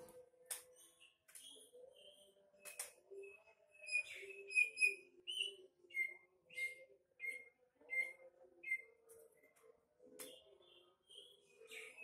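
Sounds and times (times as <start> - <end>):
bird whistling and chirping: 3.2 - 8.9.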